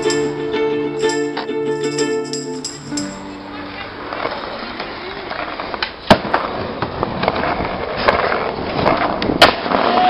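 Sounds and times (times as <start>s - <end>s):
skateboard wheels rolling on asphalt: 3.4s - 10.0s
skateboard clacks: 4.1s - 10.0s.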